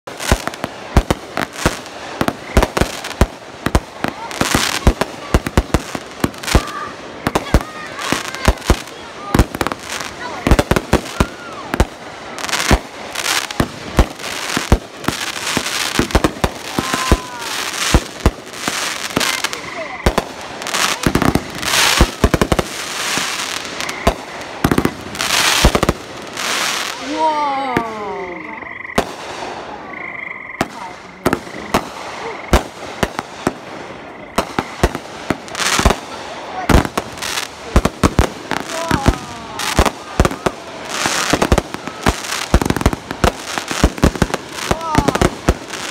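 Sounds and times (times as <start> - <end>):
firework crackling hiss: 0.0 - 28.0, 30.6 - 45.9
firework bangs: 0.0 - 28.1, 28.9 - 30.0, 30.6 - 45.9
firework whistling tone: 9.6 - 29.8.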